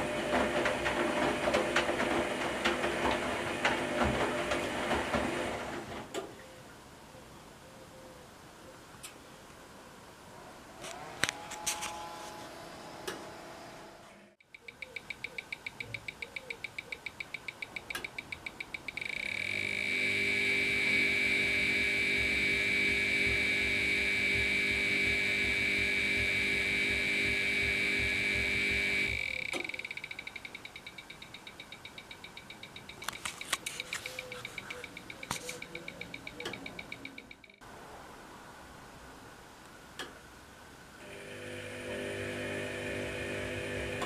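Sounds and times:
rapid electronic ticking: 14.4 - 37.6
steady high-pitched tone: 15.0 - 37.6
low electronic buzz: 19.0 - 31.2, 41.0 - 44.0.

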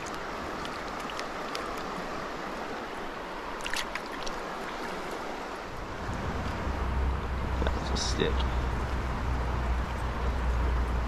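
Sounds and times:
small splashes: 0.0 - 5.6
stream water rushing: 0.0 - 11.0.

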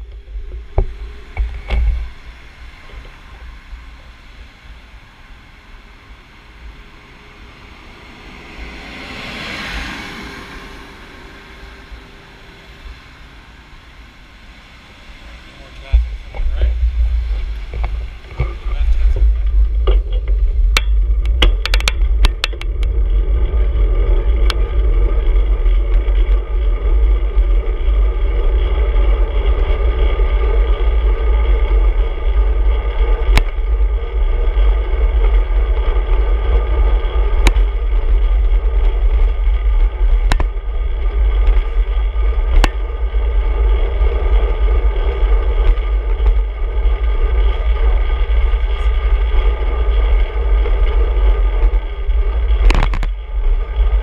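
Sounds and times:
road rumble: 0.0 - 54.0
wind buffeting: 0.0 - 54.0
sharp clicks from bumps: 15.8 - 54.0.

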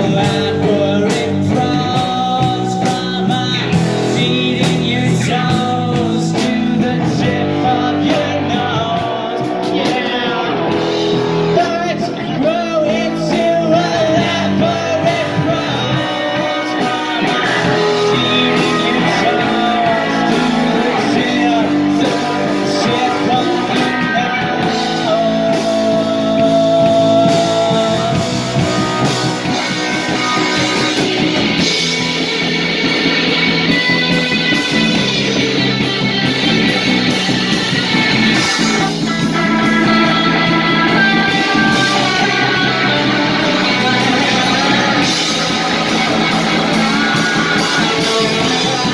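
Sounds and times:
drums: 0.0 - 48.9
electric bass: 0.0 - 48.9
electric guitar: 0.0 - 48.9
person singing lead vocal: 0.0 - 48.9.

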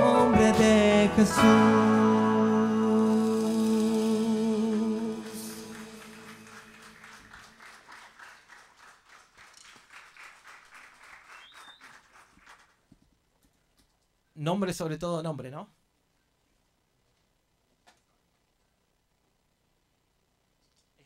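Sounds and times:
band chord ringing out: 0.0 - 7.2
light scattered applause: 3.8 - 12.9.

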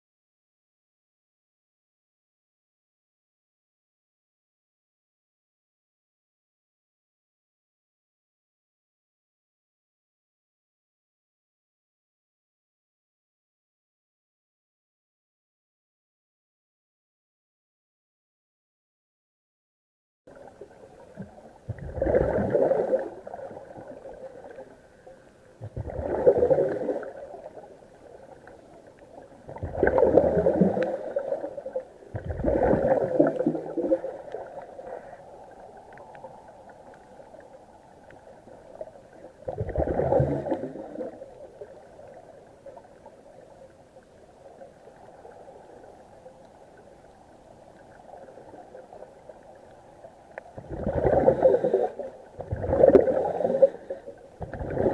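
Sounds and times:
faint steady hiss: 20.3 - 54.9
underwater air bubbling: 20.3 - 54.9.

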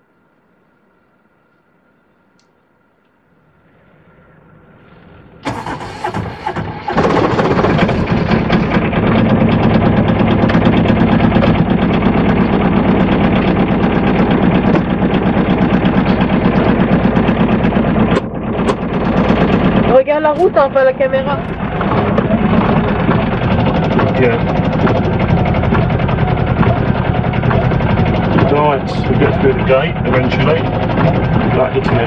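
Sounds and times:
diesel van engine running: 5.4 - 32.0.

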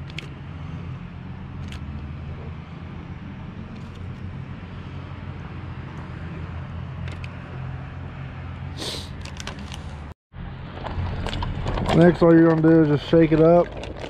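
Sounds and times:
plastic bag crinkling: 11.1 - 14.0.

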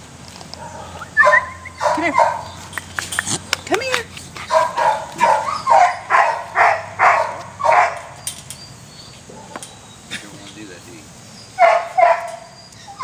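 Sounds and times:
dog barking: 0.6 - 2.6, 4.5 - 8.2, 11.6 - 12.5.

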